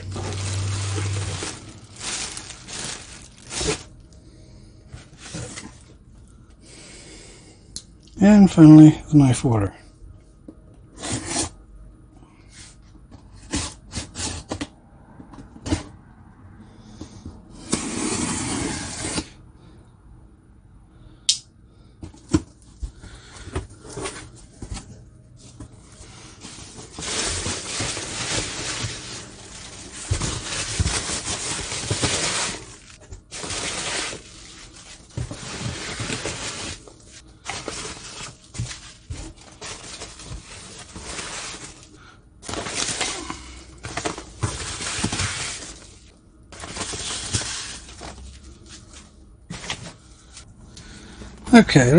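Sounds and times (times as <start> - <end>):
box flaps tearing rustle: 0.0 - 3.9
packing peanuts rustling: 0.0 - 4.0, 26.1 - 49.9.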